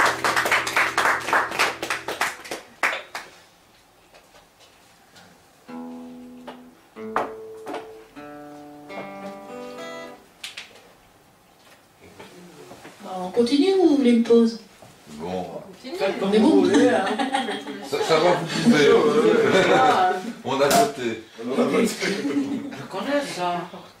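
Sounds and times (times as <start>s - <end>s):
acoustic guitar: 0.0s - 2.7s, 5.6s - 10.4s.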